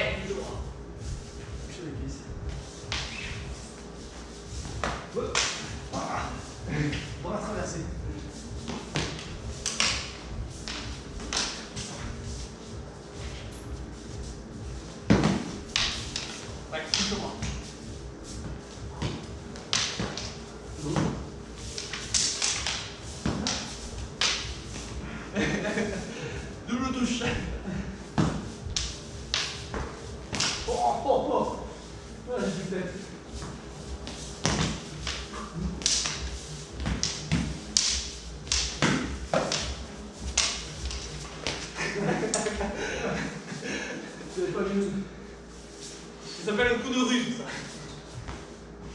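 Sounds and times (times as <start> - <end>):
footfalls on a hard floor: 14.2 - 17.7, 28.1 - 30.8, 33.3 - 41.7.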